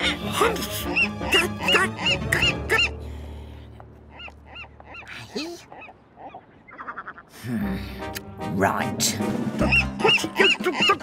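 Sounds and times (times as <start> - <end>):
seagull squawking: 0.0 - 3.0, 4.0 - 7.3, 9.6 - 11.0.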